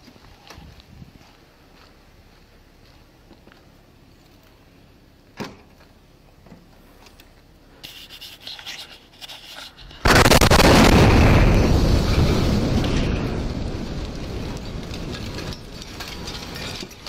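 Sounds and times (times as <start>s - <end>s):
loud explosion blast: 10.0s - 15.4s.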